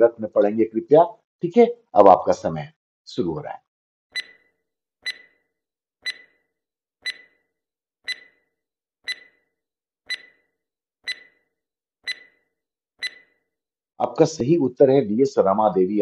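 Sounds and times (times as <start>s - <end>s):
stopwatch ticking: 4.1s - 5.4s, 6.0s - 7.5s, 8.1s - 9.5s, 10.1s - 13.4s.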